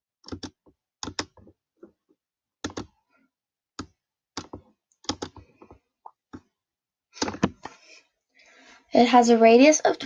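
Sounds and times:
computer mouse clicking: 0:00.2 - 0:01.5, 0:02.6 - 0:02.9, 0:03.8 - 0:05.8.

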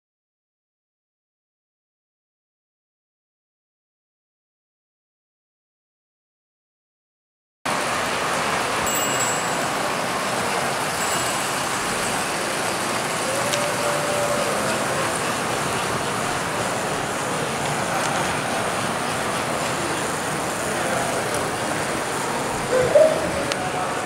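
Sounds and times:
model train motors whirring: 0:08.3 - 0:22.7.

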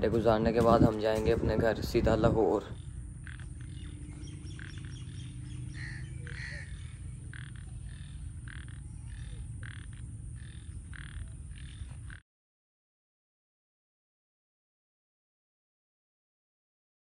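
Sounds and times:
low rumble: 0:00.0 - 0:12.2
frogs croaking: 0:02.5 - 0:12.2.

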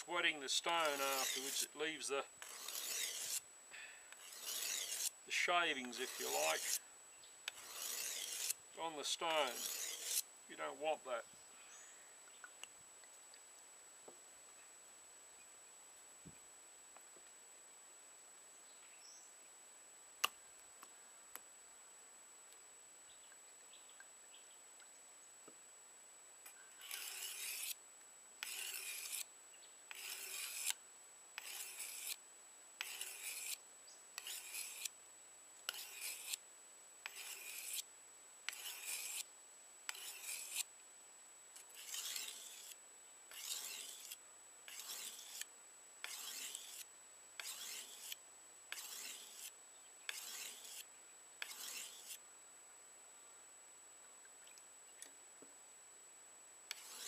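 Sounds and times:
knife rubbing on whetstone: 0:00.0 - 0:03.4, 0:04.2 - 0:06.8, 0:07.5 - 0:10.2, 0:26.8 - 0:27.8, 0:28.4 - 0:29.3, 0:29.9 - 0:30.8, 0:31.4 - 0:32.2, 0:32.8 - 0:33.6, 0:34.2 - 0:34.9, 0:35.7 - 0:36.4, 0:37.0 - 0:37.8, 0:38.5 - 0:39.3, 0:39.9 - 0:40.7, 0:41.6 - 0:49.5, 0:50.1 - 0:52.2, 0:56.7 - 0:57.0.

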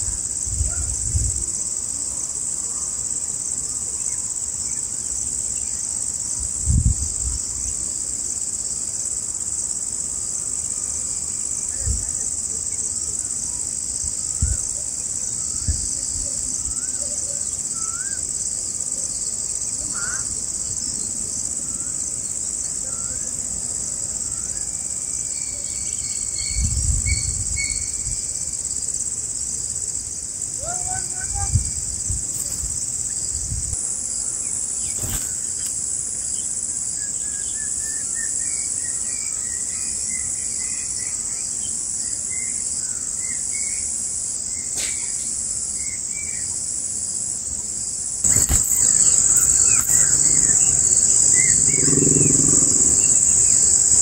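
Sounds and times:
high-pitched insect chorus: 0:00.0 - 0:54.0
faint bird chirps: 0:48.3 - 0:54.0.

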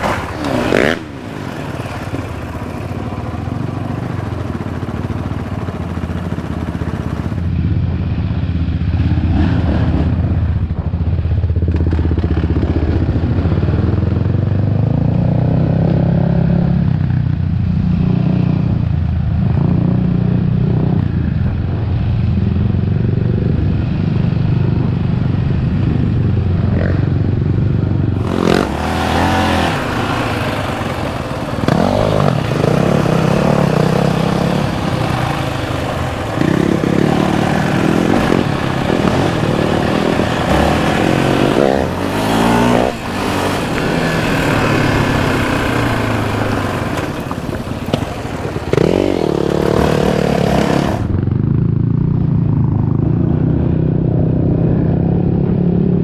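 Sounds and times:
wind: 0:00.0 - 0:56.0
single-cylinder engine revving: 0:28.2 - 0:51.2.

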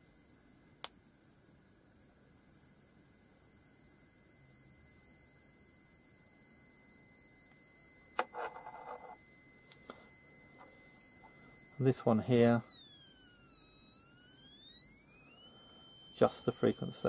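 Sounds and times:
high-pitched square-wave beep: 0:06.7 - 0:17.0.

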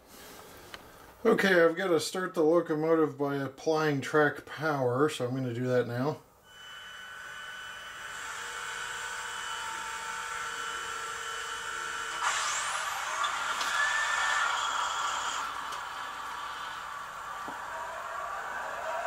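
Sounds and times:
rising engine whine: 0:12.1 - 0:19.0.

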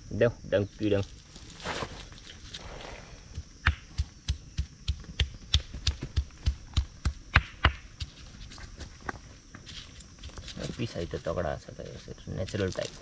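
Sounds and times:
stone pounding on stone slab: 0:03.4 - 0:08.1.

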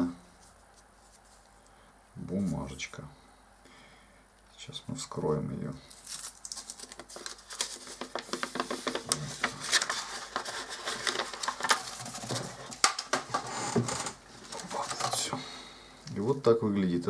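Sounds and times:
paper wrapping crinkling: 0:05.8 - 0:15.4.

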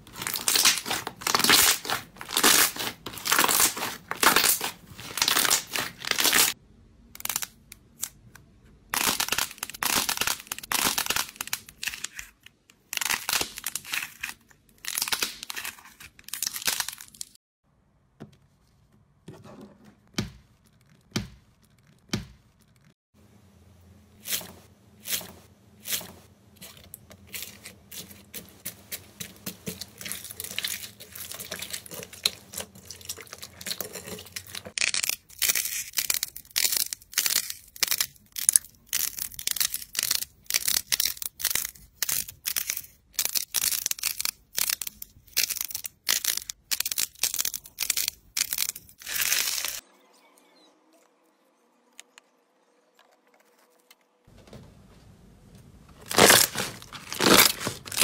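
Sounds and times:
hands squishing crackly slime: 0:00.0 - 0:06.6, 0:08.9 - 0:17.4, 0:26.6 - 0:49.8, 0:56.0 - 0:58.0
clay balls cracking and crunching: 0:00.0 - 0:17.4, 0:25.9 - 0:49.8, 0:56.0 - 0:58.0.

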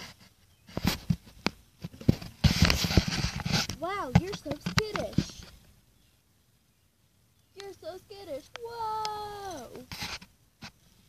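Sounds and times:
phone microphone rubbing: 0:00.0 - 0:05.6, 0:09.4 - 0:10.8.

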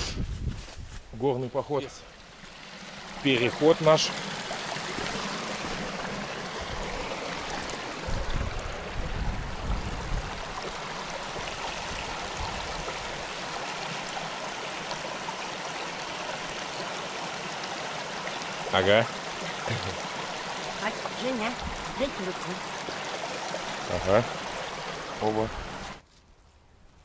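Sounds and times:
stream babbling over rocks: 0:01.5 - 0:26.0.

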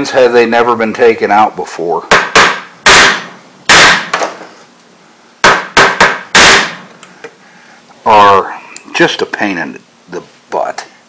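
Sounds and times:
hammer striking metal pin: 0:02.1 - 0:04.2, 0:05.4 - 0:06.8.

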